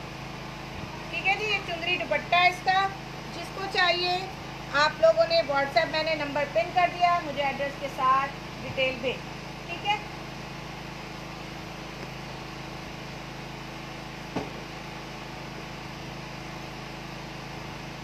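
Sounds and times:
background hum and hiss: 0:00.0 - 0:18.0.

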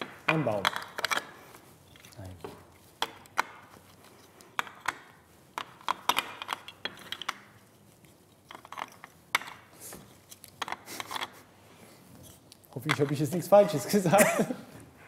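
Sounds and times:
plastic toy bricks clicking: 0:00.3 - 0:01.3, 0:04.6 - 0:07.4.

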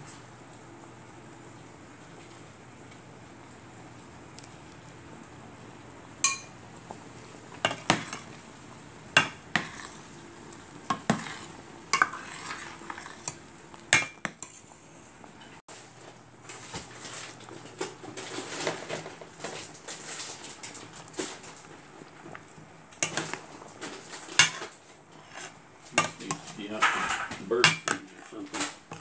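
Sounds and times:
soft crackling patter: 0:00.0 - 0:08.9, 0:09.6 - 0:29.0
metal ladle clinking against pot: 0:06.2 - 0:06.5.

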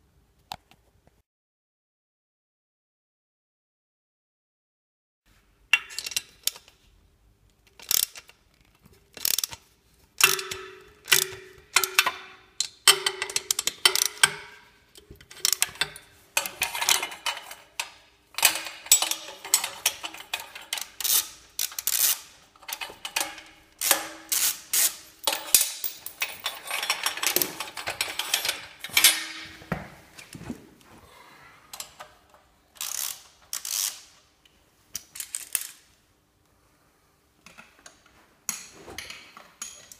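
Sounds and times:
metallic tool clanks and knocks: 0:10.2 - 0:21.2, 0:22.6 - 0:29.9.

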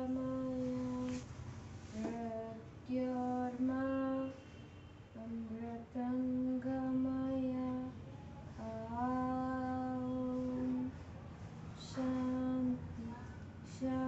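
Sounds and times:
girl chanting: 0:11.8 - 0:14.0.

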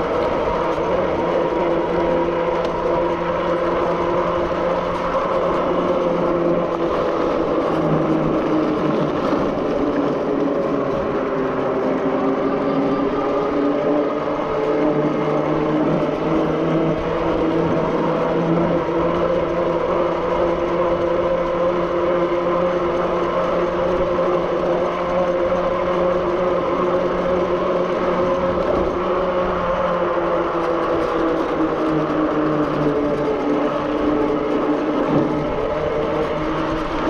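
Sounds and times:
electric bike motor whining: 0:00.0 - 0:37.0
tyre and wind rumble: 0:00.0 - 0:37.0.

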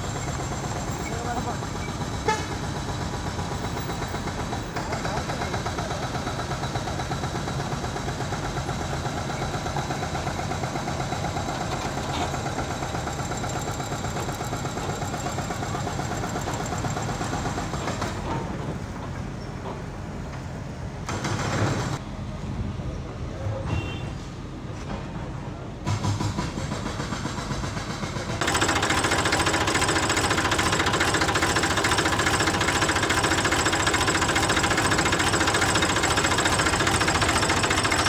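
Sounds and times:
truck engine running: 0:27.4 - 0:38.0.

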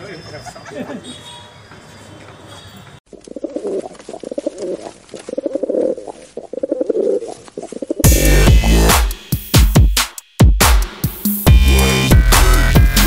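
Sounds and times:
pigeons cooing: 0:03.1 - 0:08.1
electronic music with heavy bass: 0:08.0 - 0:13.0.

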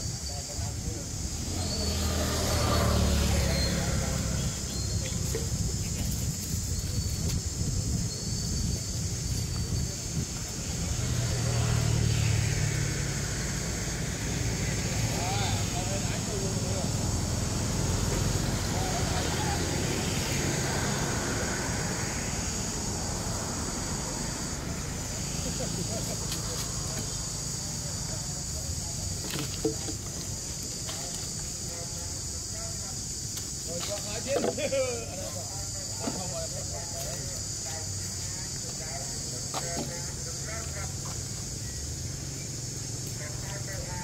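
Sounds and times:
high hiss: 0:00.0 - 0:44.0
high insect drone: 0:00.0 - 0:44.0
vehicle engine passing by: 0:01.2 - 0:05.9, 0:10.0 - 0:29.0.

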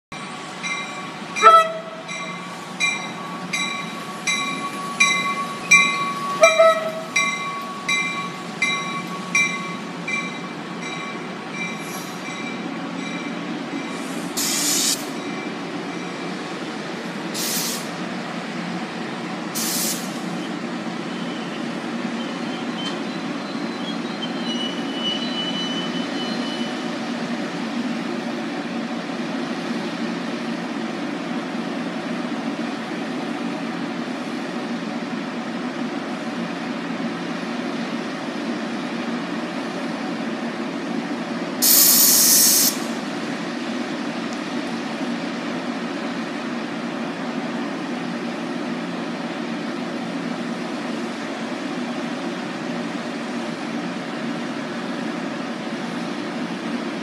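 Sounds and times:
crossing warning bell dinging: 0:00.1 - 0:14.1, 0:15.1 - 0:16.5
train coaches rumbling: 0:00.1 - 0:57.0
train horn blasts: 0:01.4 - 0:02.1, 0:06.2 - 0:07.2
air hisses: 0:14.0 - 0:15.2, 0:17.4 - 0:18.0, 0:19.6 - 0:20.2, 0:41.6 - 0:43.0
wheel or brake squeal: 0:20.4 - 0:26.9.

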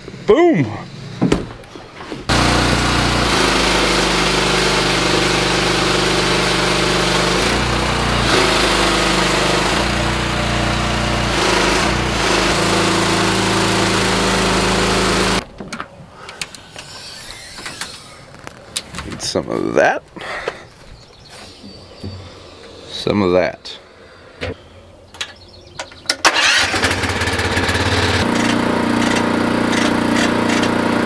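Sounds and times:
small gas engine running: 0:02.3 - 0:15.4, 0:26.3 - 0:31.0.

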